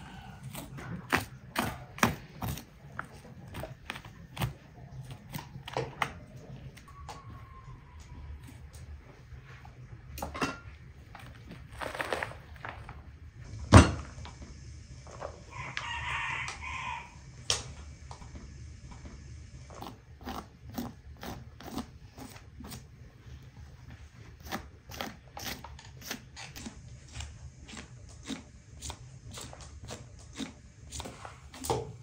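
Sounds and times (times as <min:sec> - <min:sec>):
rooster crowing: 0:06.9 - 0:08.7, 0:15.4 - 0:17.4.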